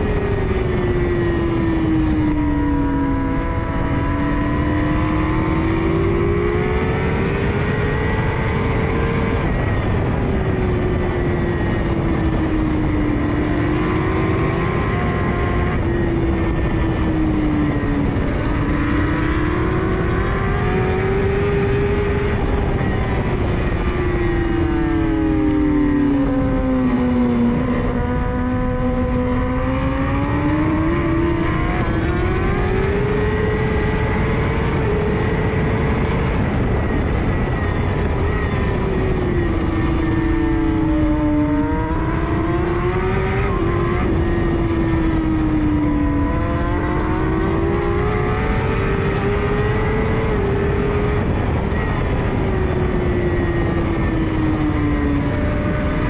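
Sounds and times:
motorcycle engine revving: 0:00.0 - 0:56.0
wind rush: 0:00.0 - 0:56.0.

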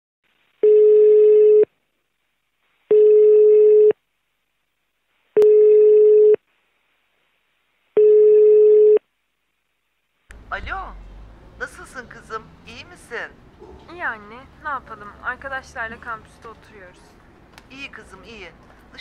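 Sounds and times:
telephone ringback tone: 0:00.6 - 0:01.7, 0:02.9 - 0:04.0, 0:05.4 - 0:06.4, 0:08.0 - 0:09.0.

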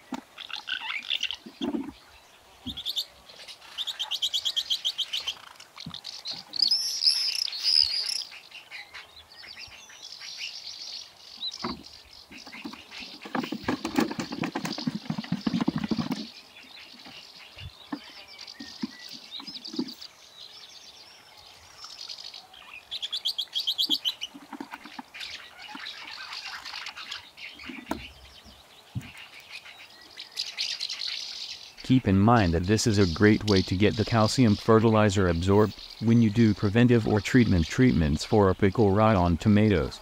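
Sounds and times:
songbirds chirping and singing: 0:00.0 - 0:40.0
bottles and buckets handled: 0:01.4 - 0:02.0, 0:11.6 - 0:16.4, 0:17.0 - 0:20.0, 0:23.8 - 0:25.9.

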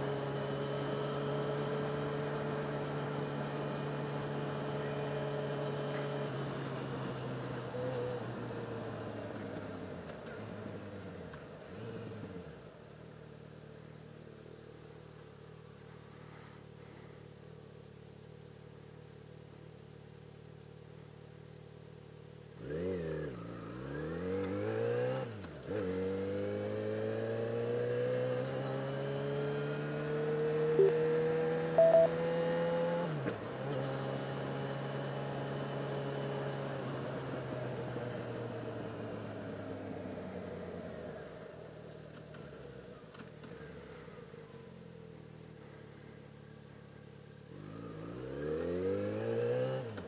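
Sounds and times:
short beeps: 0:30.8 - 0:31.1, 0:31.8 - 0:32.2.

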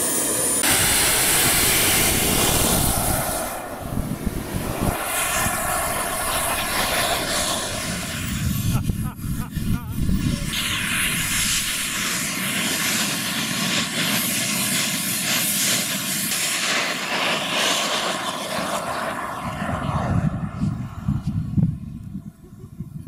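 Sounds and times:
high thin turbine whistle: 0:00.0 - 0:21.8
jet turbine rush: 0:00.0 - 0:22.5.

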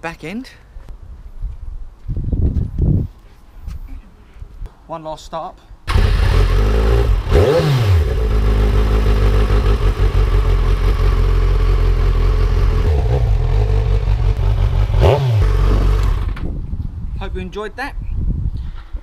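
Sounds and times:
motorcycle engine idling loudly: 0:08.0 - 0:16.4.

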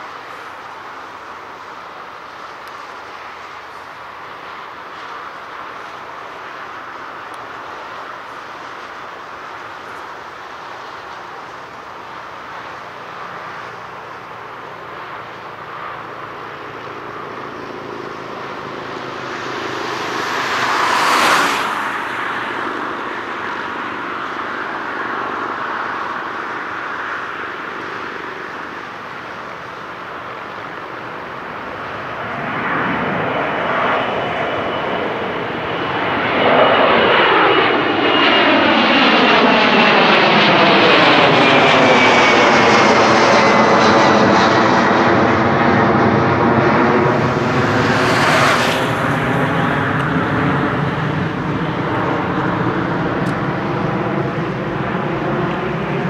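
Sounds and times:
high jet whine: 0:00.0 - 0:56.0
jet engines rumbling: 0:00.0 - 0:56.0
jet whoosh: 0:19.3 - 0:22.7, 0:35.6 - 0:51.8.

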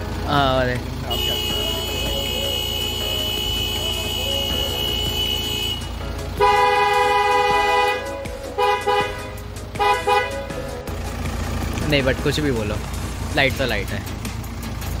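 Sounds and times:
steady high tone: 0:01.1 - 0:05.9
car horn blast: 0:01.1 - 0:10.5.

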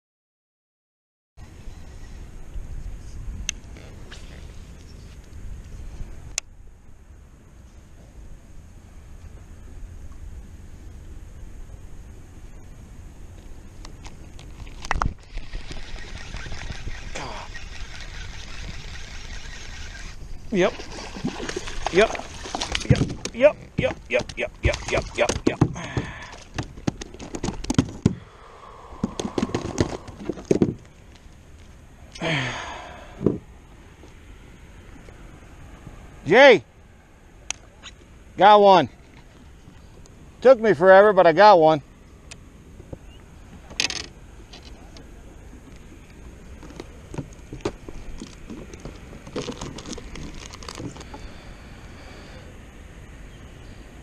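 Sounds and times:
low steady rumble: 0:01.4 - 0:25.5
clicks and knocks in plastic kayak: 0:25.2 - 0:28.2, 0:46.5 - 0:51.2
breathy grunt: 0:25.7 - 0:26.5, 0:32.2 - 0:33.2.

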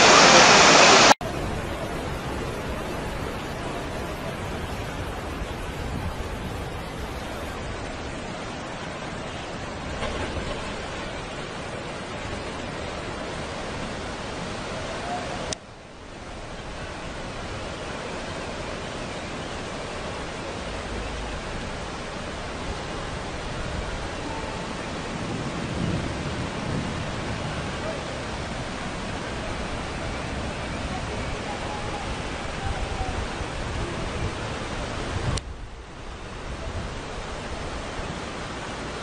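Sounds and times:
floodwater rushing: 0:00.0 - 0:39.0.

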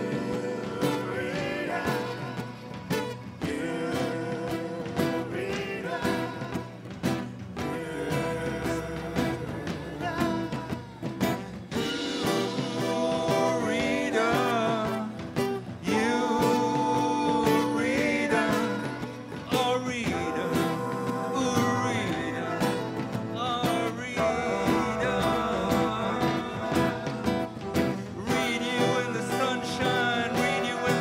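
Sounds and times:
rock band playing instrumental: 0:00.0 - 0:31.0.

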